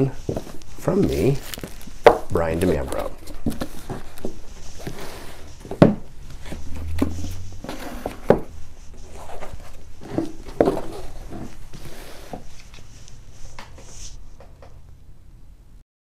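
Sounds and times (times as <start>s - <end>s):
books knocking on wooden desk: 3.2s - 8.6s, 10.0s - 11.5s.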